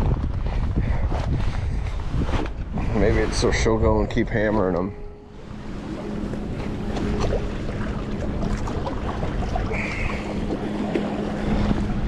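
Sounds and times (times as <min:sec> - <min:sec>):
wind buffeting microphone: 0:00.0 - 0:12.0
steady low hum: 0:00.8 - 0:12.0
water lapping against rocks: 0:05.3 - 0:12.0.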